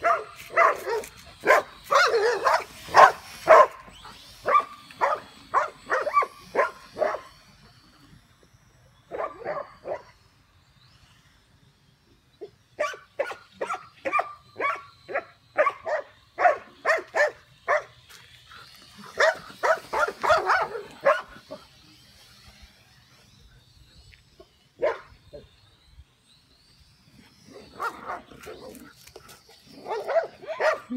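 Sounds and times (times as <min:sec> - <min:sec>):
dogs barking: 0:00.0 - 0:07.3, 0:09.1 - 0:10.1, 0:12.8 - 0:17.9, 0:19.0 - 0:21.6, 0:24.8 - 0:25.1, 0:27.8 - 0:28.6, 0:29.8 - 0:30.9
drone whine: 0:00.0 - 0:30.9.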